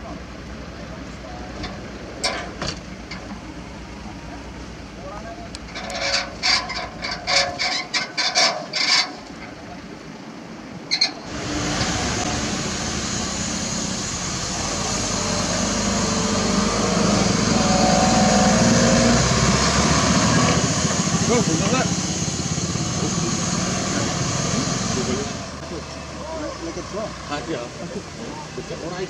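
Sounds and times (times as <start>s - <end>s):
road noise: 0.0s - 29.0s
truck diesel engine running: 11.2s - 29.0s.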